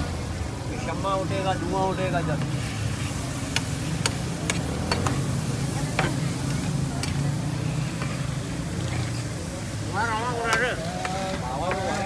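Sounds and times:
liver sizzling in oil: 0:00.0 - 0:12.0
spatula scraping griddle: 0:02.4 - 0:12.0
spatula clacking on griddle: 0:03.4 - 0:09.3.

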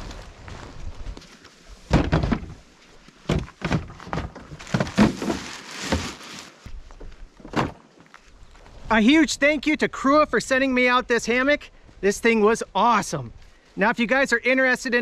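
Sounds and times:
irregular knocks and thumps: 0:01.9 - 0:02.6, 0:03.2 - 0:06.0.

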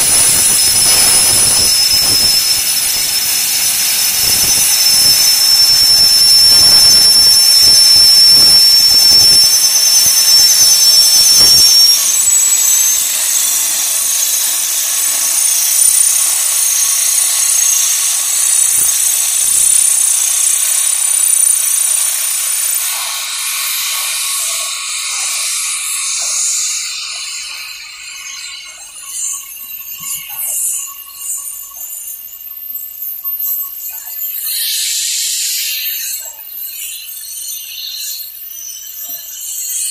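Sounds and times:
low pulsing: 0:00.0 - 0:22.5
shrill high tone: 0:00.0 - 0:35.3
steam locomotive hissing: 0:00.0 - 0:39.9.

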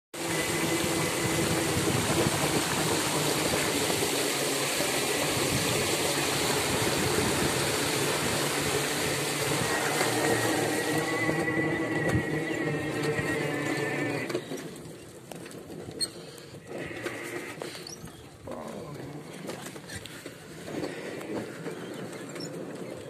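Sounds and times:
water rushing and splashing: 0:00.2 - 0:14.6.

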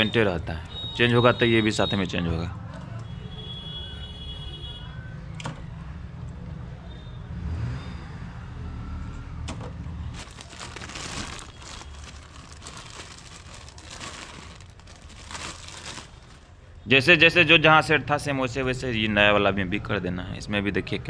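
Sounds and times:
plastic packaging crinkling: 0:10.1 - 0:16.5.

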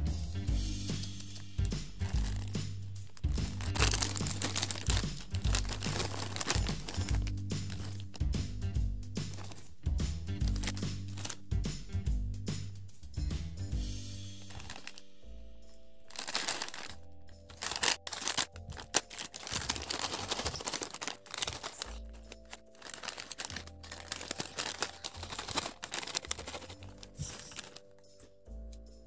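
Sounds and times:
background music with held notes: 0:00.0 - 0:29.0
fried snacks pouring into hand: 0:00.9 - 0:08.3, 0:10.4 - 0:11.4, 0:14.4 - 0:15.0, 0:16.1 - 0:27.8
plastic snack packet crinkling: 0:00.9 - 0:08.4, 0:09.2 - 0:11.5, 0:14.4 - 0:28.1.

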